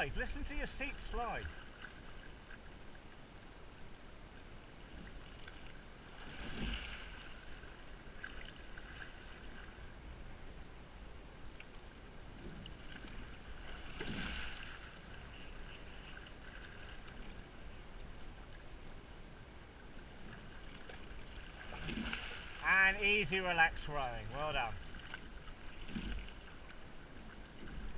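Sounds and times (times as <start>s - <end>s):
water rushing along boat hull: 0.0s - 27.9s
oar stroke splashes: 4.8s - 9.8s, 12.5s - 17.4s, 20.1s - 22.9s, 24.0s - 27.9s.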